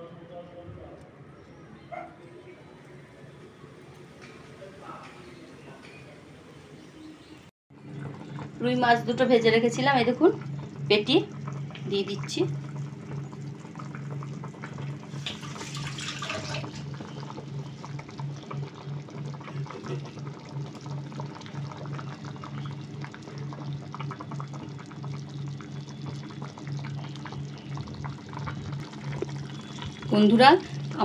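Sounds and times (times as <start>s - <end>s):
curry bubbling in a pan: 7.7s - 31.0s
low pulsing hum: 7.7s - 31.0s.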